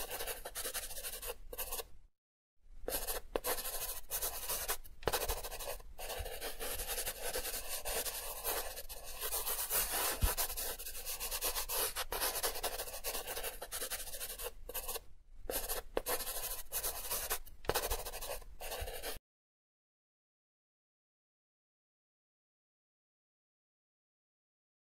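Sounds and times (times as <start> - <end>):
pencil scratching on paper: 0.0 - 1.9, 2.9 - 19.2.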